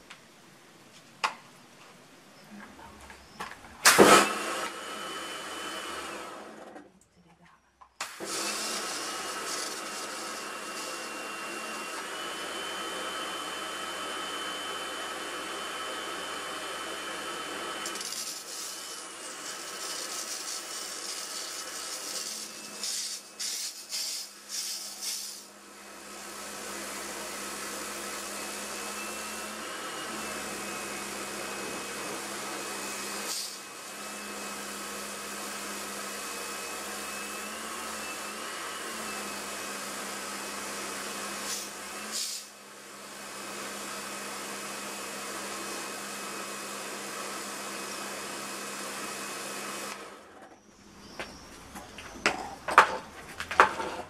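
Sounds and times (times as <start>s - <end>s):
pressure washer running: 3.8s - 6.7s, 8.0s - 50.2s
water jet spraying on plastic: 17.8s - 25.4s.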